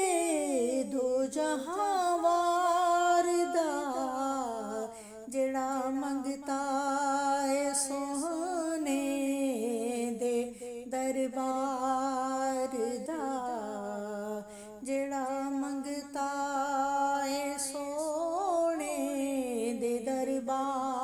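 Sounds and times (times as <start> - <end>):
woman singing unaccompanied: 0.0 - 21.0
singer breathing: 4.9 - 5.3, 10.5 - 10.9, 14.5 - 14.8.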